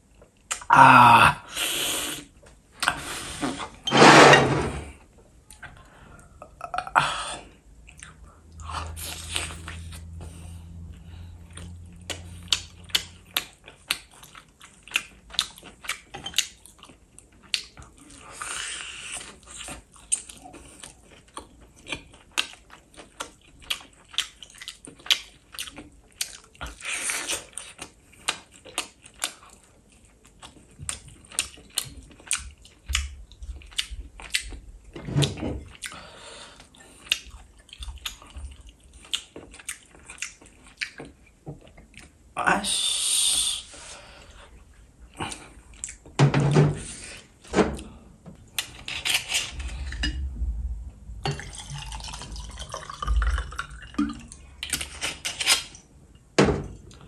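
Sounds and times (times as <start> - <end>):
person chewing: 0.1 - 3.4, 5.4 - 34.8, 35.6 - 42.2, 43.8 - 46.1, 51.4 - 55.8.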